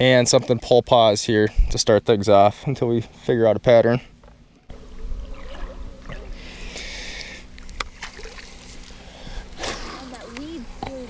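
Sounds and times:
boat hum: 0:02.1 - 0:11.0
fishing line hiss: 0:05.2 - 0:10.8.

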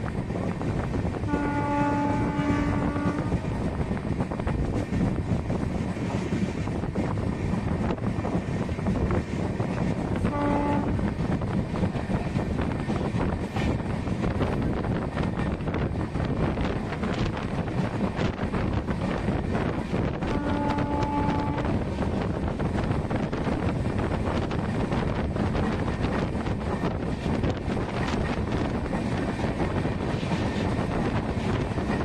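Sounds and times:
train rumble and wind rush: 0:00.0 - 0:32.0
train wheels clicking on rails: 0:00.0 - 0:32.0
train horn: 0:01.2 - 0:03.5, 0:10.2 - 0:11.1, 0:20.2 - 0:21.9.

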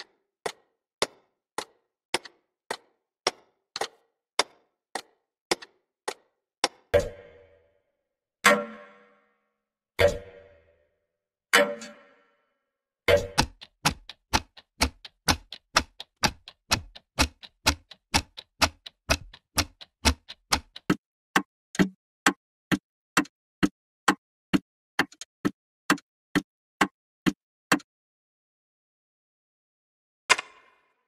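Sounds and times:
sharp ticking clicks: 0:13.2 - 0:23.3.

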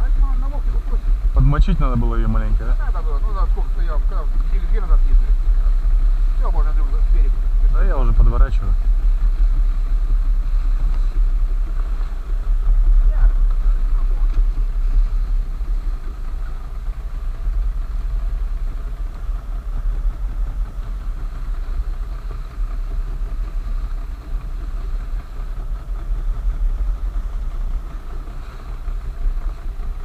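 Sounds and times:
outboard motor running: 0:00.0 - 0:30.0.

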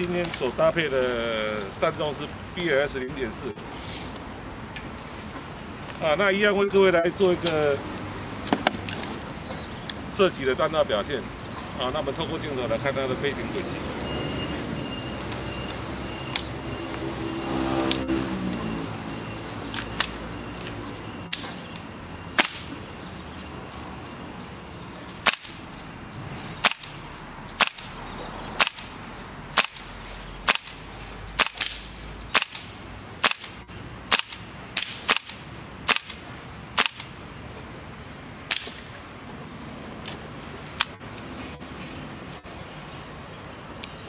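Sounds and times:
airsoft rifle shots: 0:22.4 - 0:22.8, 0:25.2 - 0:25.6, 0:26.6 - 0:27.0, 0:27.6 - 0:27.9, 0:28.6 - 0:29.0, 0:29.6 - 0:30.8, 0:31.4 - 0:36.2, 0:36.8 - 0:37.2.

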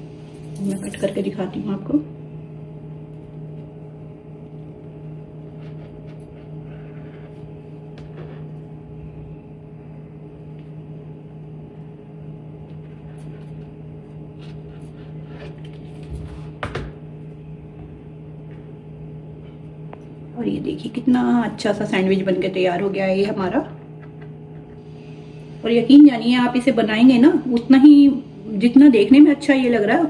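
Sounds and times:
steady hum: 0:00.0 - 0:30.0
knife slicing bread: 0:05.4 - 0:07.3.

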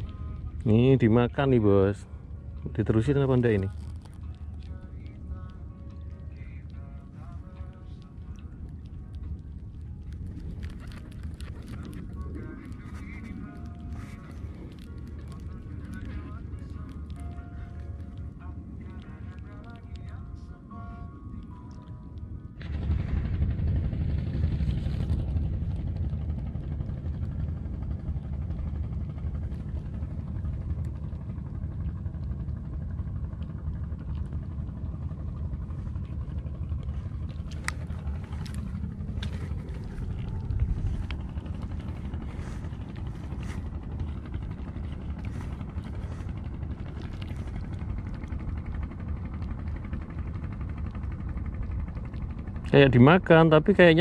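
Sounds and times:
wind buffeting microphone: 0:22.6 - 0:54.0.

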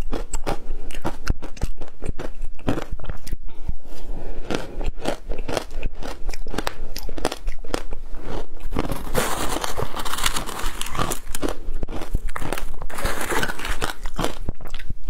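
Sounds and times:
shaved ice being chewed: 0:04.4 - 0:15.0
metal spoon digging into ice: 0:12.9 - 0:14.1.

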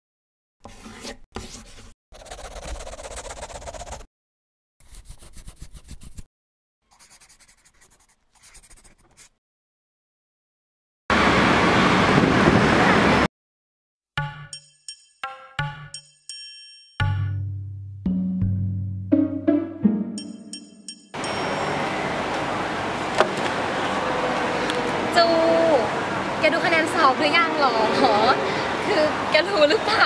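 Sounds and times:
pen scribbling on paper: 0:00.6 - 0:04.1, 0:04.8 - 0:06.3, 0:06.9 - 0:09.4
chiming tune: 0:14.5 - 0:17.3, 0:19.2 - 0:22.2
loud steady rush of noise: 0:21.4 - 0:30.0.

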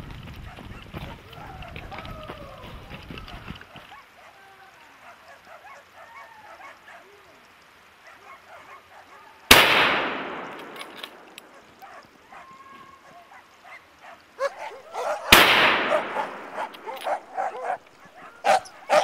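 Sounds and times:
dogs baying and yelping: 0:02.9 - 0:04.4, 0:05.0 - 0:07.2, 0:07.9 - 0:09.4, 0:11.4 - 0:19.0
rifle shot: 0:09.5 - 0:11.3, 0:15.3 - 0:16.8.

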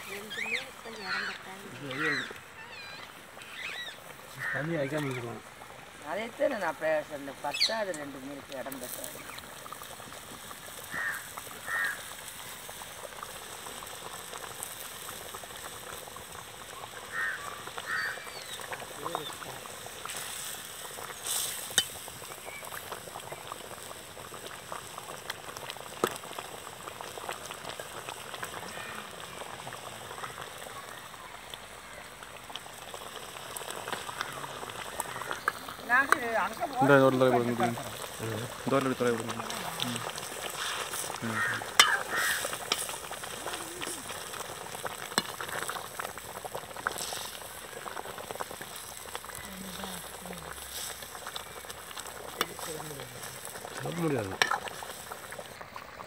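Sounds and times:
gravy bubbling in a pot: 0:00.0 - 0:56.0
ladle stirring: 0:35.0 - 0:44.2, 0:52.0 - 0:54.9.

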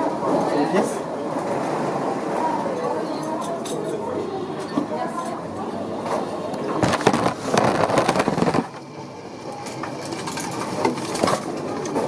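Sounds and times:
background hubbub: 0:00.0 - 0:12.0
plastic tray rolling on conveyor rollers: 0:06.8 - 0:08.8.

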